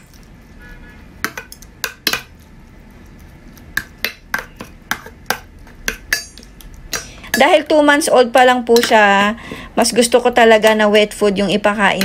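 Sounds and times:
metal spoon clinking in steel bowl: 0:04.0 - 0:07.7, 0:08.7 - 0:09.1.

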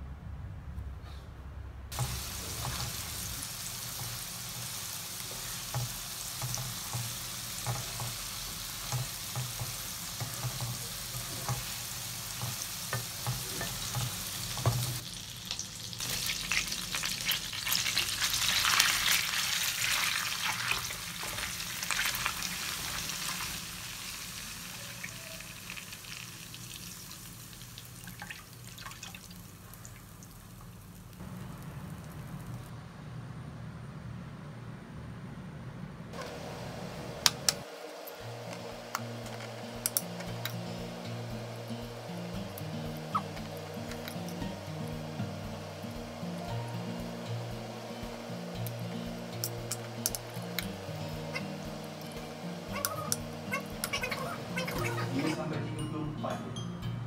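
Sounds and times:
butter sizzling in a frying pan: 0:01.9 - 0:31.2.

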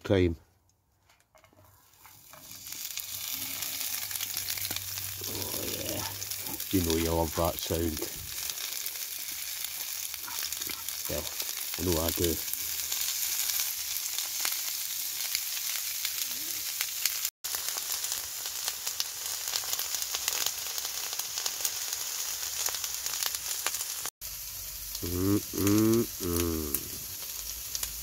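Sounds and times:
vegetables sizzling in frying pan: 0:01.8 - 0:28.0
person humming: 0:05.2 - 0:06.2, 0:25.0 - 0:27.1.

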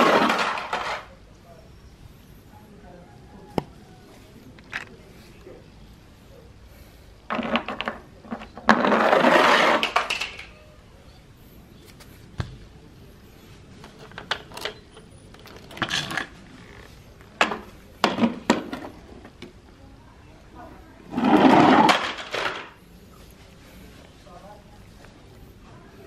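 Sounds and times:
plastic toys knocking and clicking: 0:00.0 - 0:01.1, 0:07.3 - 0:10.5, 0:13.9 - 0:14.8, 0:15.4 - 0:16.4, 0:17.4 - 0:19.6, 0:21.8 - 0:22.8.

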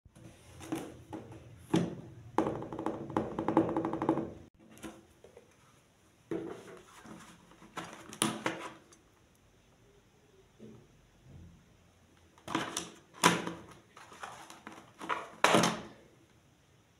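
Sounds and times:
knocks on wooden table: 0:01.8 - 0:04.4.

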